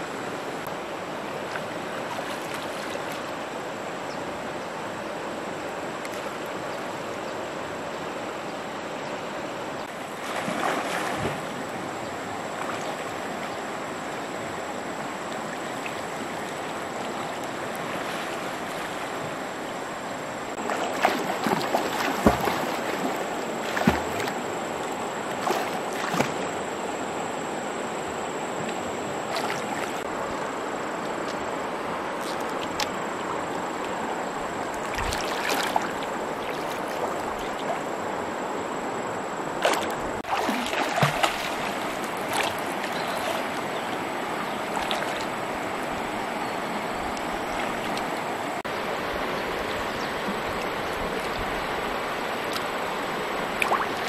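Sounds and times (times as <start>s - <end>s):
stream water rushing: 0.0s - 54.0s
water splashing: 1.4s - 3.4s, 9.8s - 13.5s, 14.9s - 19.6s, 20.5s - 26.7s, 28.6s - 30.4s, 31.0s - 38.1s, 39.5s - 54.0s
sharp slaps on water: 53.6s - 53.9s.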